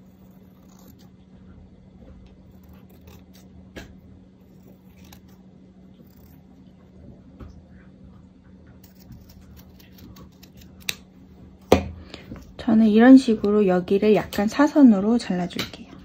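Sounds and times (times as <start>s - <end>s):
low steady hum: 0.0s - 16.0s
scissors clicking and snipping: 8.8s - 11.0s.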